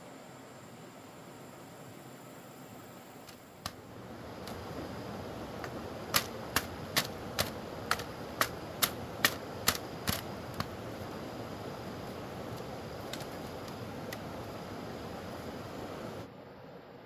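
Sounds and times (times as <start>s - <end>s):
sharp knocks or chops: 5.6s - 10.7s.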